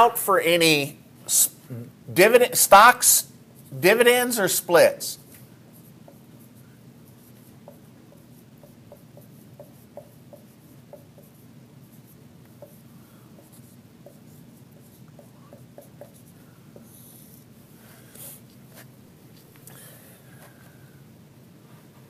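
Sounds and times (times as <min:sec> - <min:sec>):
low room hum: 0:00.0 - 0:22.0
marker squeaking on whiteboard: 0:05.8 - 0:17.4.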